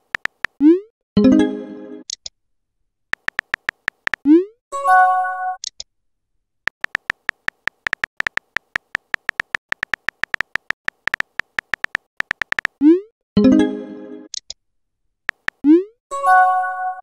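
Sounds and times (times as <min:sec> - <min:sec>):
phone keyboard typing clicks: 0:00.0 - 0:00.6, 0:03.1 - 0:04.3, 0:06.7 - 0:12.8, 0:15.3 - 0:15.6.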